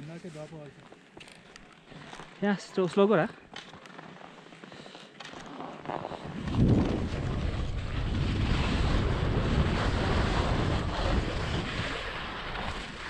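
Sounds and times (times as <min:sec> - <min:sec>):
wind buffeting microphone: 0:06.3 - 0:13.0.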